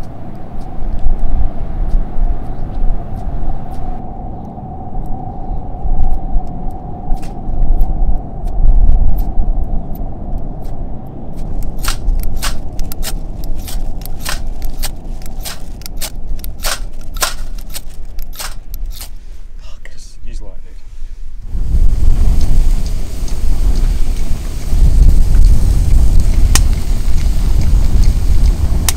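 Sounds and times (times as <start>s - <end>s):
steady low rumble: 0.0s - 28.9s
quick sharp clicks: 11.4s - 19.2s.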